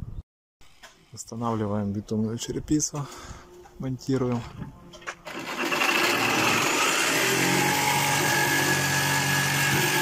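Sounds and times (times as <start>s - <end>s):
motor running: 5.3s - 10.0s.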